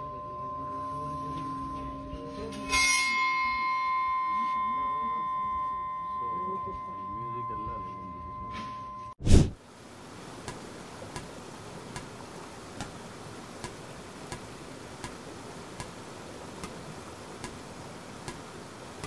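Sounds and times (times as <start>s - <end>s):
river water rushing: 9.6s - 19.0s
sharp repeating tick: 13.6s - 15.2s, 17.4s - 17.6s, 18.2s - 18.5s.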